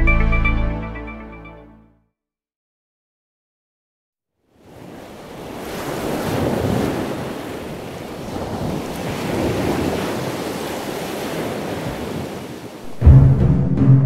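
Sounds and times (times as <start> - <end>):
ocean waves washing: 4.5 - 13.8.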